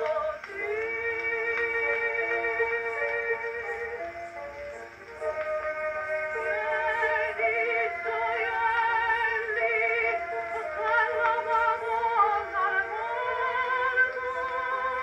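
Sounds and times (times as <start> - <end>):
phonograph playing soprano aria: 0.0 - 15.0
soprano singing with vibrato: 0.0 - 15.0.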